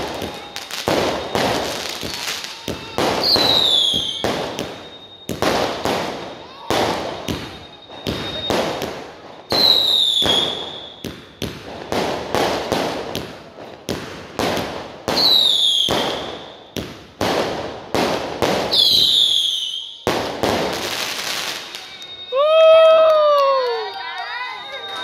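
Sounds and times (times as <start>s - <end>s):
firework whistling: 0.0s - 25.0s
fireworks bangs and cracks: 0.0s - 25.0s.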